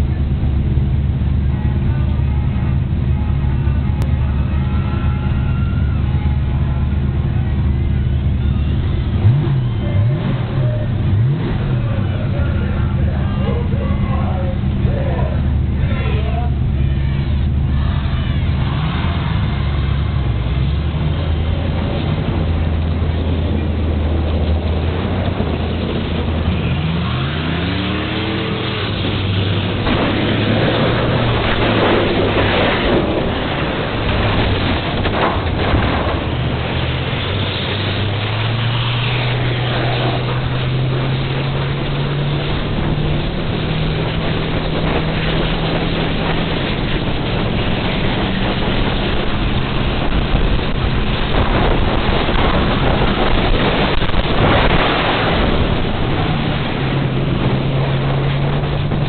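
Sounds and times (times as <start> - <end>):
race car engine running hard: 0.0 - 59.0
loud rushing scraping noise: 22.4 - 59.0.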